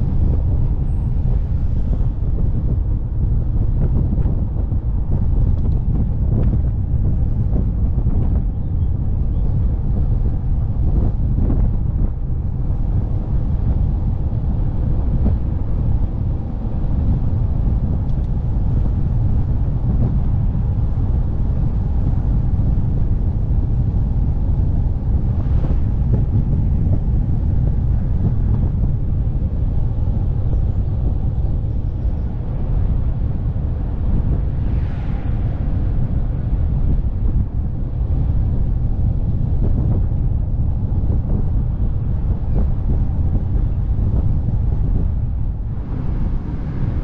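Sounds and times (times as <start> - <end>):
low vehicle rumble: 0.0 - 47.0
road noise: 0.0 - 47.0
wind buffeting microphone: 0.0 - 47.0.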